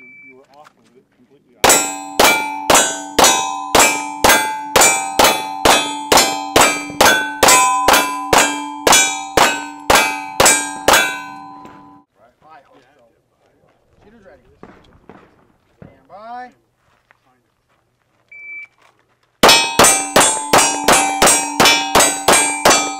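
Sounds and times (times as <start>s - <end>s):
steel targets ringing: 1.6s - 12.1s, 19.4s - 22.9s.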